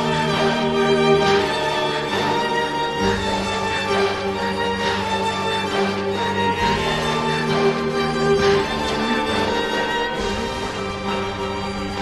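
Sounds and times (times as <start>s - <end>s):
slow music with held notes: 0.0s - 12.0s.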